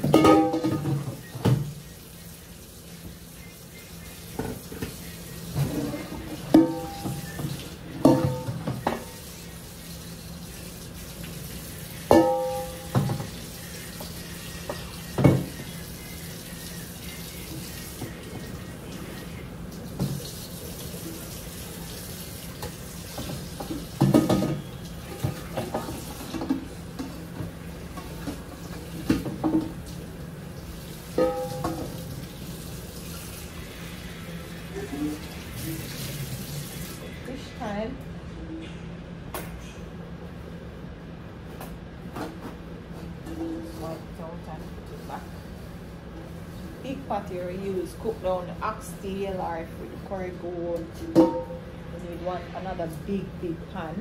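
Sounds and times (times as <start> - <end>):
metal pots clanking: 0.0 - 1.6, 5.5 - 9.1, 12.1 - 13.4, 31.2 - 32.2, 51.0 - 51.7
tap water running into sink: 0.0 - 34.1, 34.9 - 37.1.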